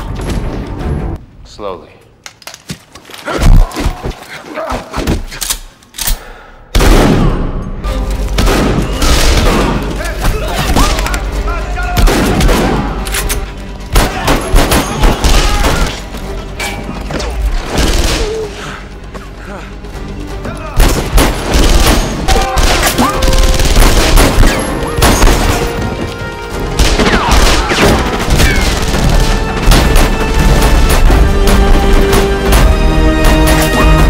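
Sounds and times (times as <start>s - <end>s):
rifle shots and gunfire bursts: 13.9s - 15.9s, 20.8s - 25.8s.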